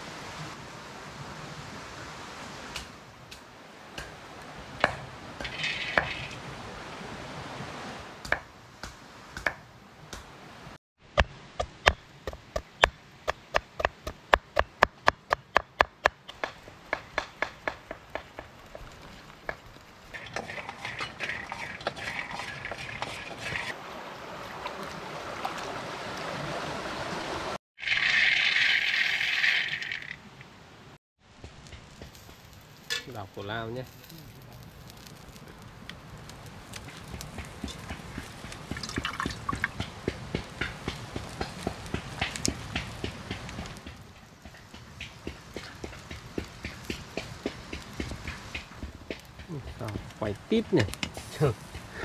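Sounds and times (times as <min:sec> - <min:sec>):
scraping and rustling: 0:20.1 - 0:23.8.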